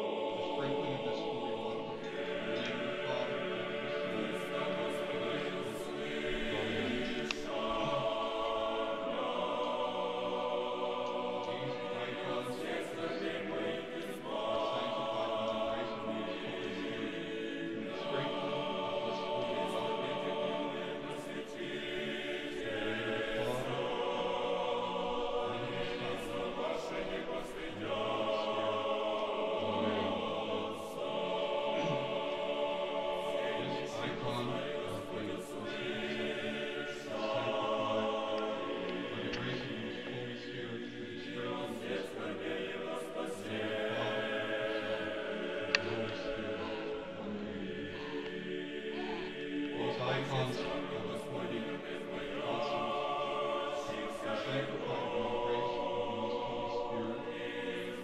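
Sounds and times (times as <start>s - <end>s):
choir chanting a cappella: 0.0s - 58.0s
faint clicks: 11.0s - 11.6s.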